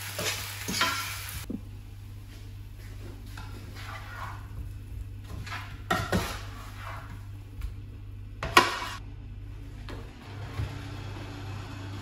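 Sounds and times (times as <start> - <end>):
steady low hum: 1.4 - 10.6.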